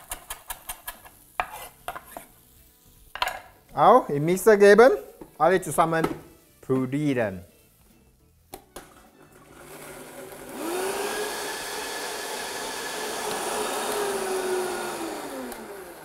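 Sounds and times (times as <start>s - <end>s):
blender motor whining: 9.3s - 16.0s.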